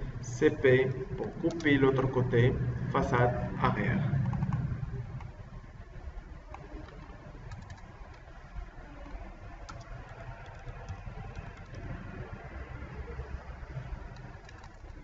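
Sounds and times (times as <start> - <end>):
low background rumble: 0.0 - 15.0
computer keyboard and mouse clicks: 1.2 - 1.7, 4.2 - 5.4, 6.5 - 8.3, 9.0 - 12.3, 13.7 - 15.0.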